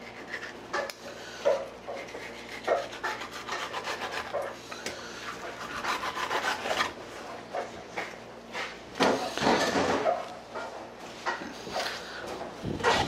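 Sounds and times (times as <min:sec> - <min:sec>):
knife scraping fish fillet: 0:00.0 - 0:07.0.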